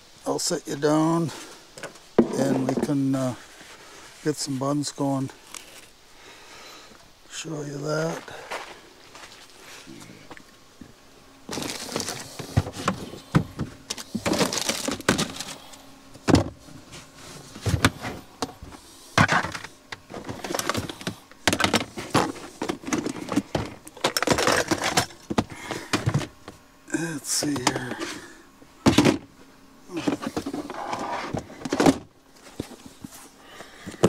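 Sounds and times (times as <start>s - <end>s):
objects knocking and clunking: 19.2s - 26.6s.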